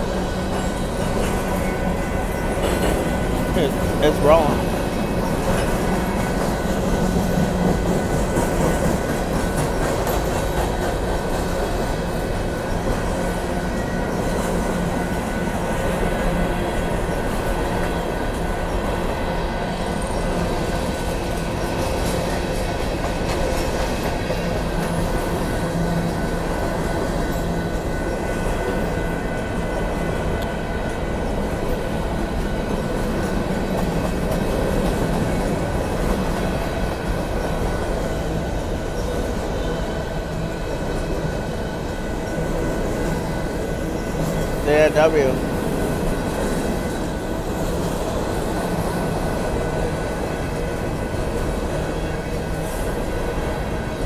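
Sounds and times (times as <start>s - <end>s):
train rumbling past: 0.0s - 54.0s
wheels clacking over rail joints: 0.2s - 19.0s.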